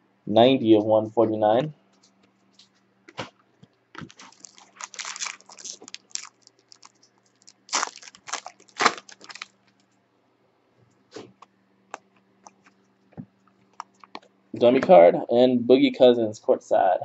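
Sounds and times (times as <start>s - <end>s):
foil wrapper crinkling and tearing: 4.0s - 9.6s.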